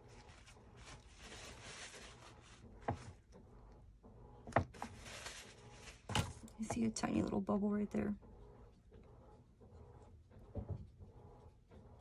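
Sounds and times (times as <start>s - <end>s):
paper towel rustling: 0.0s - 3.2s, 4.7s - 6.2s.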